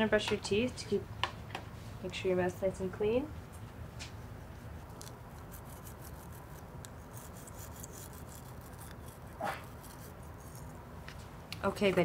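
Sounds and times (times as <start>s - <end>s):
toothbrush scrubbing teeth: 4.5s - 10.8s.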